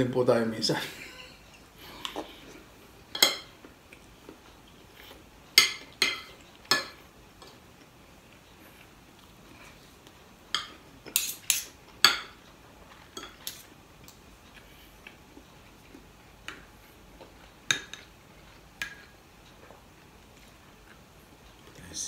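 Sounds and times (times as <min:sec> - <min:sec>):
cutlery clinking on ceramic plate: 0:10.5 - 0:12.4, 0:13.1 - 0:13.7.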